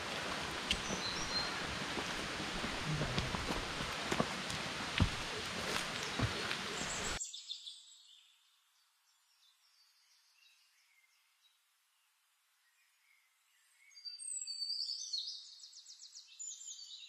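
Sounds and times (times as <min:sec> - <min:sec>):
footsteps on rock and dry leaves: 0:00.0 - 0:07.2
steady rushing hiss: 0:00.0 - 0:07.2
birds chirping and whistling: 0:00.7 - 0:02.0, 0:05.6 - 0:07.2.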